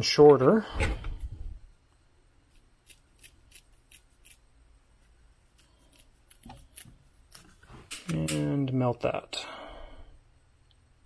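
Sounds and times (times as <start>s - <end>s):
scissors snipping: 2.5s - 4.4s, 5.5s - 8.4s.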